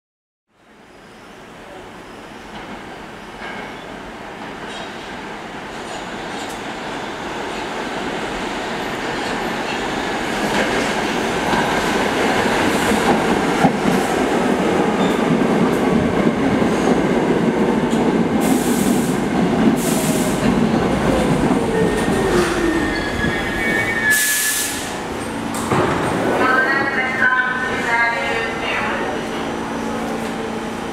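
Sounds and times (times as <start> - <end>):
subway train wheels rumbling: 0.6 - 30.9
short hiss: 24.1 - 25.0.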